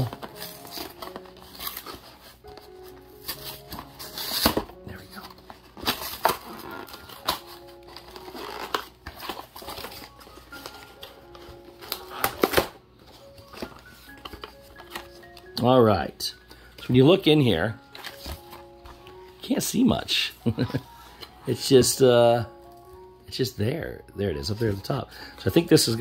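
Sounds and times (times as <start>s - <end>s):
soft background music: 0.0s - 26.0s
cardboard box tearing: 3.3s - 10.1s.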